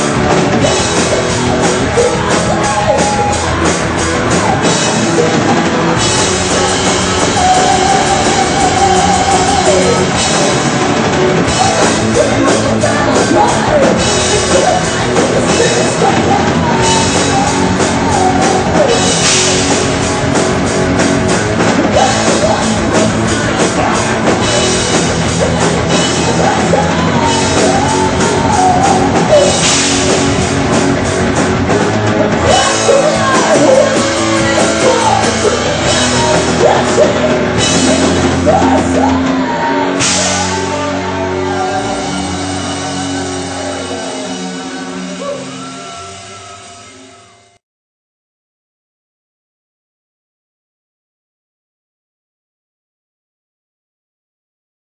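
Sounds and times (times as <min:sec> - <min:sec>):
drum kit with cymbals: 0:00.0 - 0:46.6
distorted electric guitars: 0:00.0 - 0:47.6
man singing: 0:00.6 - 0:10.8, 0:11.4 - 0:19.5, 0:21.9 - 0:24.3, 0:25.9 - 0:29.9, 0:32.2 - 0:46.3.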